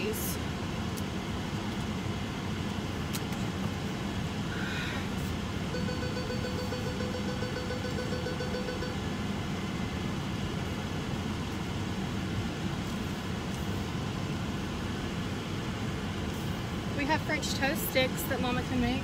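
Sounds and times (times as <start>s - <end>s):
steady tone: 5.6s - 9.3s.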